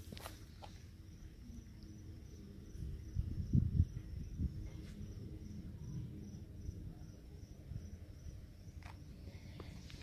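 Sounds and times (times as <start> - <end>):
insect chirping trill: 0.0 - 10.0.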